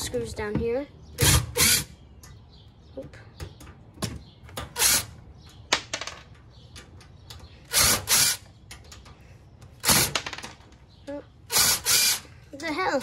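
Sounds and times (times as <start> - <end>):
cordless drill running: 11.5 - 12.3.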